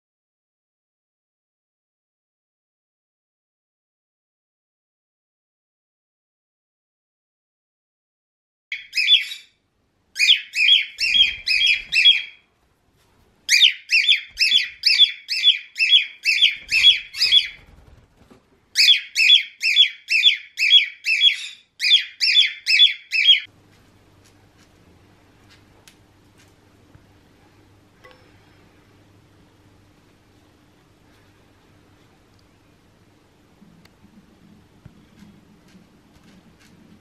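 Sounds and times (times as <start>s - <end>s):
cockatiel screaming: 8.8s - 9.5s, 10.2s - 12.4s, 13.5s - 17.6s, 18.8s - 23.5s
faint hum: 8.8s - 37.0s.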